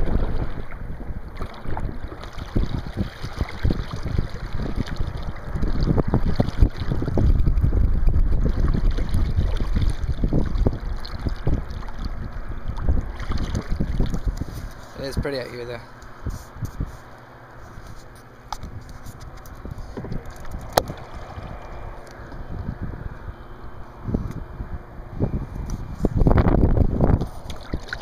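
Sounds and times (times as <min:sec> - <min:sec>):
water splashing against kayak: 0:00.0 - 0:15.0, 0:16.2 - 0:22.5, 0:26.1 - 0:28.0
wind buffeting microphone: 0:00.0 - 0:28.0.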